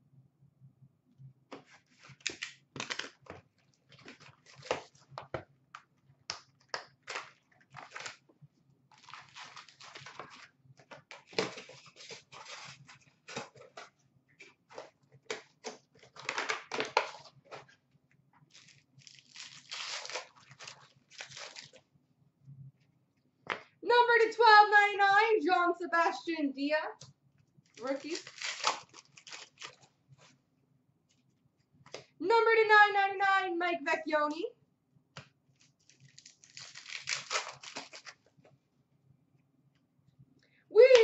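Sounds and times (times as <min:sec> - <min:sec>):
foil wrappers crinkling: 0:01.8 - 0:05.2, 0:06.6 - 0:08.3, 0:08.9 - 0:10.5, 0:11.1 - 0:17.8, 0:18.5 - 0:21.8, 0:27.7 - 0:30.4, 0:35.6 - 0:38.3
foil packs tearing: 0:07.0 - 0:08.2, 0:08.9 - 0:10.5, 0:11.2 - 0:13.8, 0:18.5 - 0:21.8, 0:27.7 - 0:29.9, 0:35.8 - 0:38.2.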